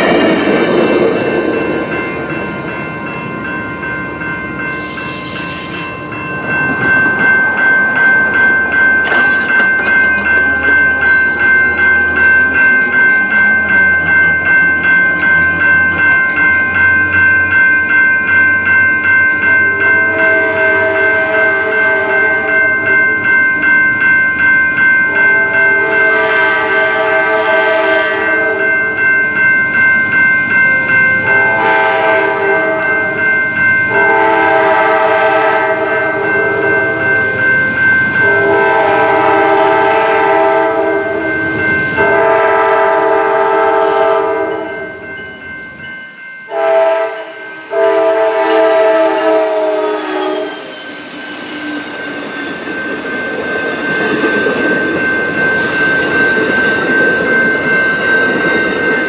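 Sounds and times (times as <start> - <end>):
bell ringing: 0.0 - 59.0
train cars clattering over rails: 4.6 - 16.8, 50.7 - 59.0
locomotive horn blasts: 19.3 - 22.4, 25.8 - 28.7, 31.4 - 33.0, 33.9 - 36.9, 38.2 - 41.2, 42.0 - 44.8, 46.5 - 50.6.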